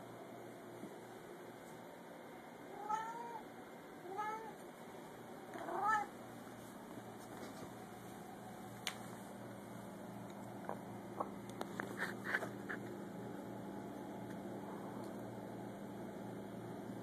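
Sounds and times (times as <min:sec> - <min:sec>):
cat meowing: 0:02.7 - 0:03.4, 0:04.1 - 0:04.6, 0:05.6 - 0:06.1.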